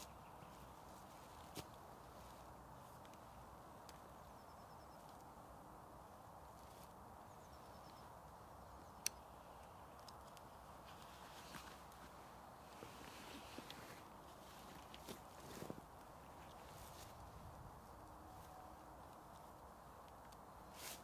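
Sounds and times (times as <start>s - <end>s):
faint woodland ambience: 0.0s - 21.0s
soft ticks: 9.0s - 9.2s.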